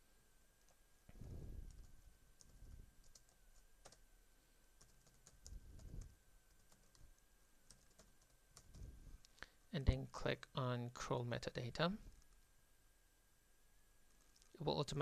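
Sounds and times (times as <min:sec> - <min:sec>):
keyboard typing: 0:01.6 - 0:04.0, 0:04.8 - 0:08.9.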